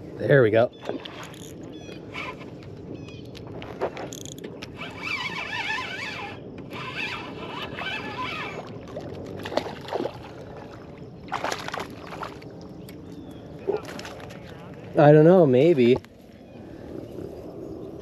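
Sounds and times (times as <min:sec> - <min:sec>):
fishing reel gear whine: 0:00.0 - 0:14.3.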